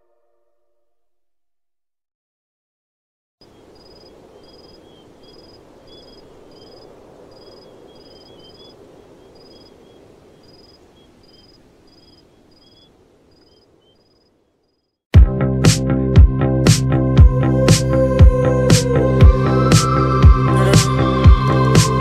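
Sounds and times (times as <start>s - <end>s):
bird chirps: 3.4s - 14.9s
high insect chirps: 3.4s - 15.0s.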